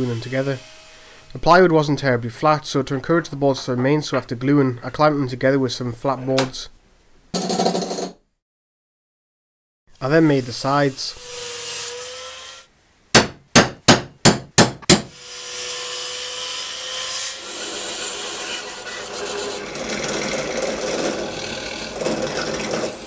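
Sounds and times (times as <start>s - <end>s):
bandsaw cutting wood: 0.0s - 1.4s, 15.1s - 23.0s
drill press boring holes: 17.6s - 23.0s.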